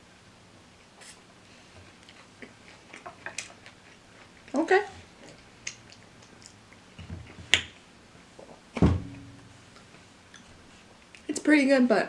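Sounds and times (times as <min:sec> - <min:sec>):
chewing fried chicken: 0:01.5 - 0:07.8
wet mouth clicks and lip smacks: 0:05.3 - 0:06.8
low thump: 0:08.8 - 0:09.6.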